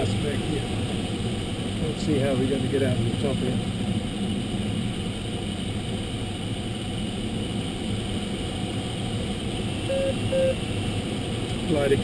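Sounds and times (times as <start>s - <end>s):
short beeps: 9.8s - 10.6s.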